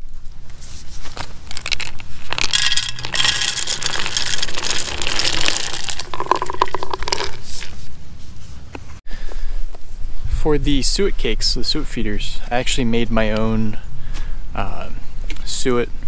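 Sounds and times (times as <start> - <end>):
peanuts rattling into feeder: 1.1 - 7.8.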